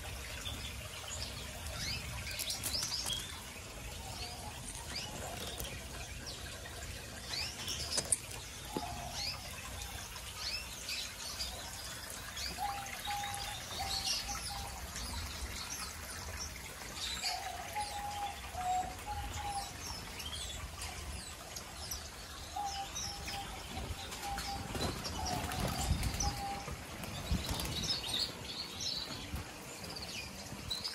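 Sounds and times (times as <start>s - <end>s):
finches chirping and twittering: 0.4s - 11.6s.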